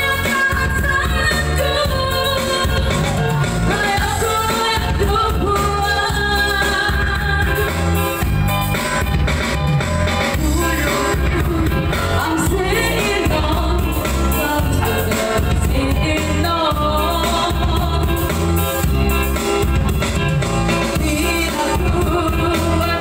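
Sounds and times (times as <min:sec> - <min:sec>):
woman singing through loudspeaker: 0:00.0 - 0:07.8, 0:10.4 - 0:18.4, 0:20.9 - 0:23.0
electronic keyboard beat with bass: 0:00.0 - 0:23.0.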